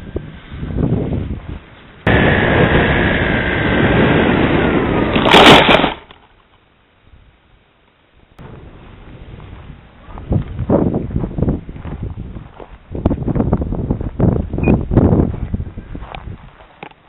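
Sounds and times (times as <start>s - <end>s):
wind rush: 0.0s - 6.1s, 8.4s - 16.6s
plane crashing into ground: 2.1s - 6.3s.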